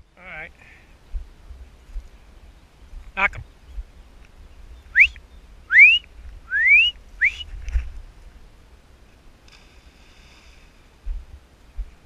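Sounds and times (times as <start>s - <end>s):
rising whistles: 4.9s - 7.5s.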